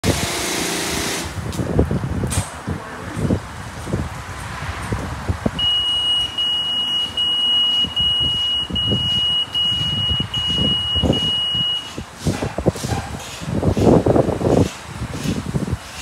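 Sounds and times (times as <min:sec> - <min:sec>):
long high-pitched beeps: 0:05.6 - 0:12.0.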